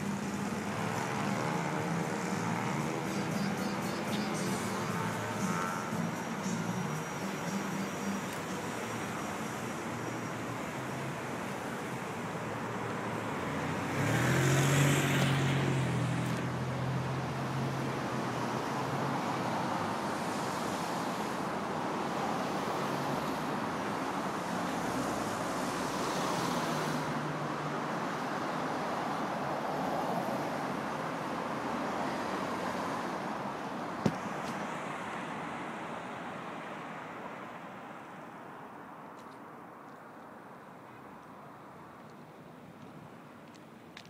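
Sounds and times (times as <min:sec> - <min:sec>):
vehicle engine hum passing: 0:00.0 - 0:21.4
road traffic noise: 0:00.0 - 0:44.0.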